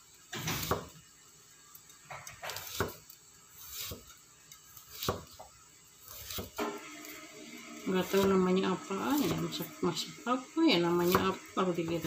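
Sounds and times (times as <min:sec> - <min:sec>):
cleaver chopping on wooden block: 0:00.5 - 0:00.8, 0:02.4 - 0:03.0, 0:04.9 - 0:05.3.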